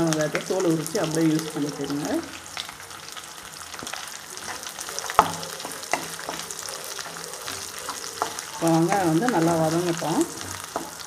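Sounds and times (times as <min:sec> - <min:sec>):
onions sizzling in oil: 0:00.0 - 0:11.0
spatula knocking against pan: 0:03.8 - 0:11.0.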